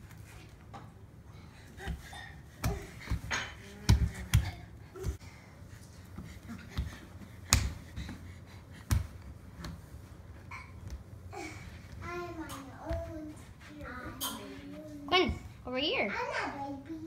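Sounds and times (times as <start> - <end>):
hands slapping hardwood floor: 6.1 - 9.9.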